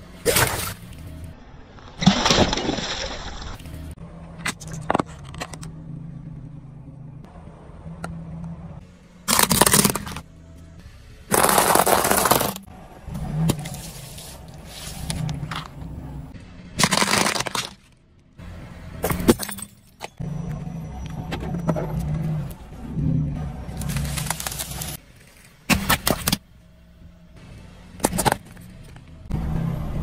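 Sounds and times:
low car hum: 0.0s - 30.0s
tyre crushing objects: 9.3s - 10.2s, 11.3s - 12.6s, 16.8s - 17.9s.

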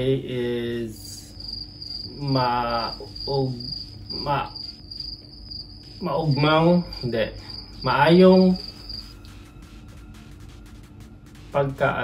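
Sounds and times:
high pulsing chirp: 0.0s - 12.0s.

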